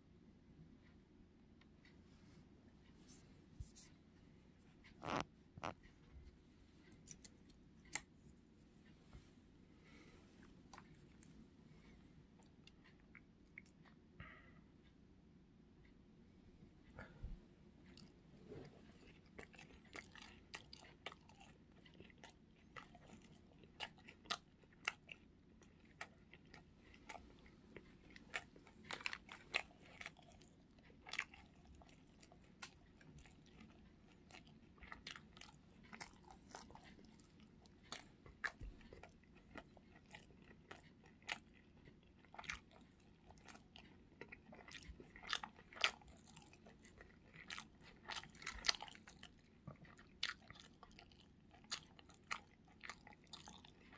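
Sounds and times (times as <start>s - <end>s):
crunching and chewing food: 4.7s - 6.0s, 6.8s - 8.3s, 9.8s - 14.6s, 16.9s - 53.9s.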